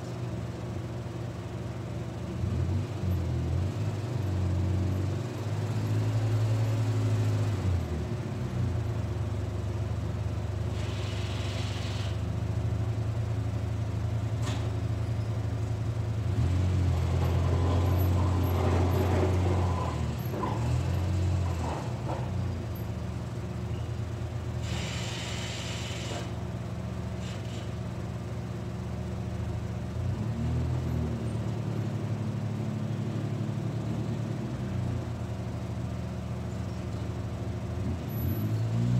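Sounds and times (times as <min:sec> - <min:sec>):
hiss: 0:10.7 - 0:12.2, 0:24.6 - 0:26.4, 0:27.2 - 0:27.8.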